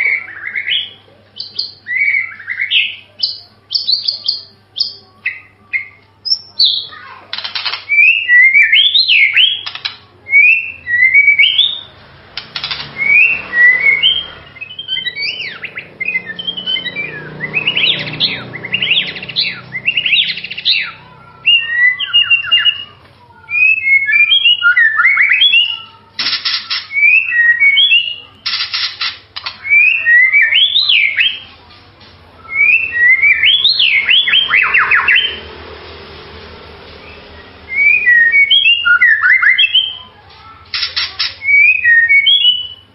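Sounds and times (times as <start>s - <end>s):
bird singing whistled notes and trills: 0.0s - 31.6s, 32.4s - 35.6s, 36.9s - 42.9s.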